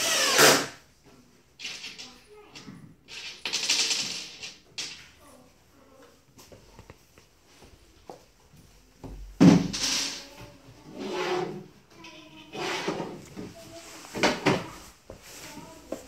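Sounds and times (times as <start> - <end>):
panel scraping against frame: 10.9 - 11.7, 12.5 - 13.2.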